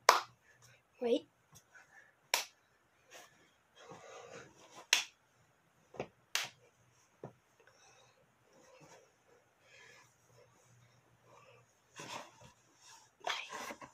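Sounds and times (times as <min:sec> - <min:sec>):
faint rustling of movement: 0:00.5 - 0:13.9.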